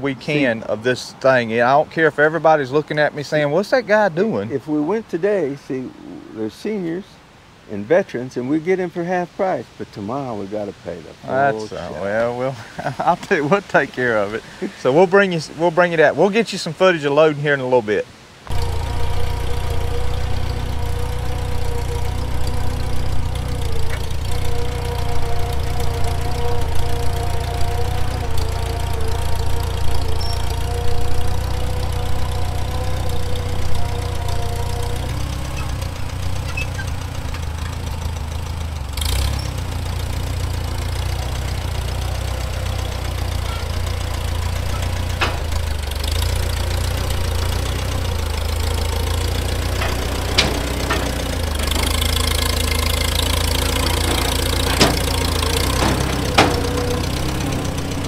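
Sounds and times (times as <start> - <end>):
engine running steadily: 18.5 - 58.0.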